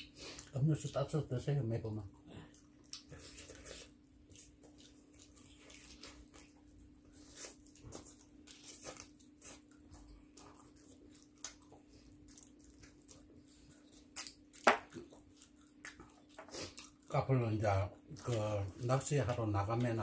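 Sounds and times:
faint steady hum: 0:00.0 - 0:20.0
chewing and biting: 0:02.1 - 0:20.0
wet mouth squishing: 0:02.5 - 0:17.1.

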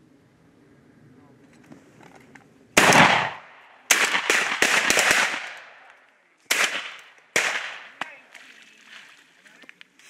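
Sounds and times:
shotgun blasts with echo: 0:02.8 - 0:05.9, 0:06.5 - 0:08.1.

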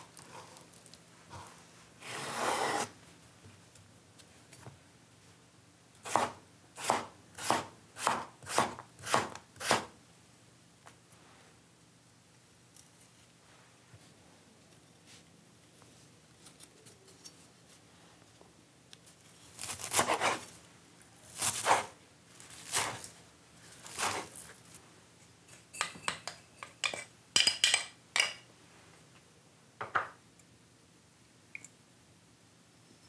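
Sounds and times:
knife chopping on wooden board: 0:06.1 - 0:09.9.

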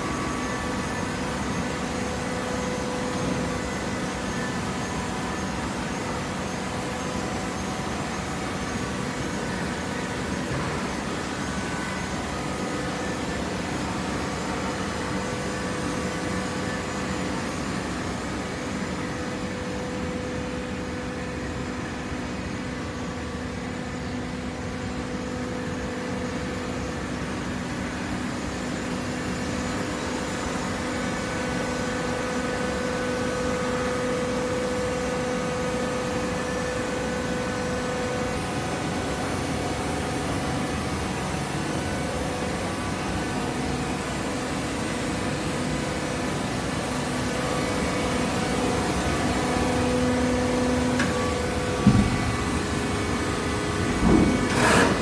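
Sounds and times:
hydraulic baler humming with whine: 0:00.0 - 0:55.0.

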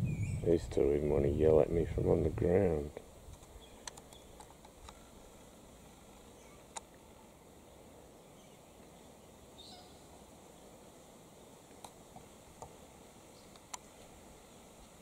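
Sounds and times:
faint steady hiss: 0:00.0 - 0:15.0
sharp clicks: 0:03.3 - 0:05.0
faint high bird call: 0:06.3 - 0:06.8, 0:09.6 - 0:10.0.

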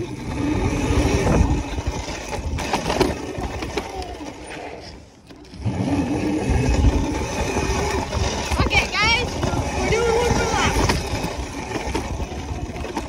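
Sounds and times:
wind on microphone: 0:00.0 - 0:03.8, 0:05.6 - 0:13.0
small motorbike engine running: 0:00.0 - 0:13.0.

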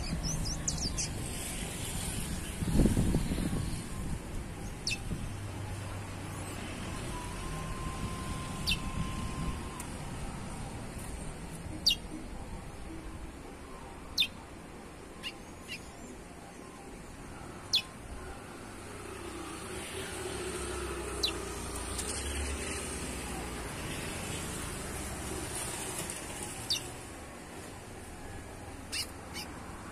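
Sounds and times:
bird chirping: 0:00.0 - 0:01.5, 0:04.6 - 0:05.2, 0:11.7 - 0:12.2, 0:14.1 - 0:14.4, 0:15.2 - 0:16.2, 0:28.9 - 0:29.6
traffic noise: 0:00.0 - 0:29.9
vehicle rumble: 0:00.0 - 0:29.9.

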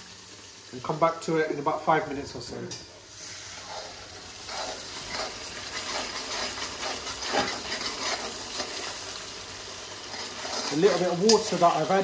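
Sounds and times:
curry base sizzling in oil: 0:00.0 - 0:12.0
spoon scraping pan: 0:02.8 - 0:09.1, 0:10.0 - 0:11.6.

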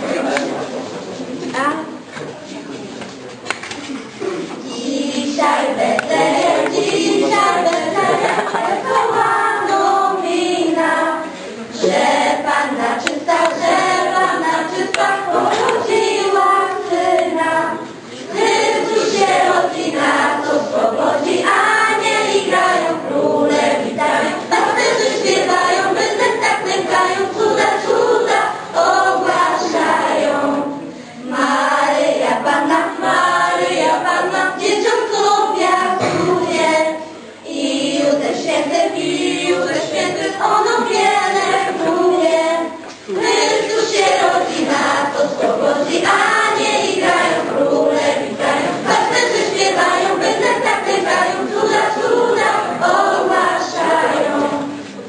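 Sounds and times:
children's choir singing a carol: 0:00.0 - 0:02.9, 0:04.1 - 0:55.0.

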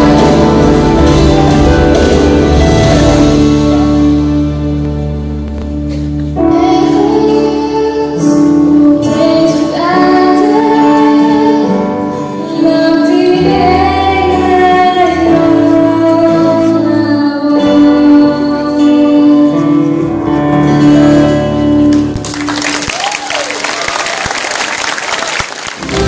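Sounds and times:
instrumental backing music: 0:00.0 - 0:23.1, 0:25.7 - 0:26.0
girls singing: 0:06.5 - 0:11.9.

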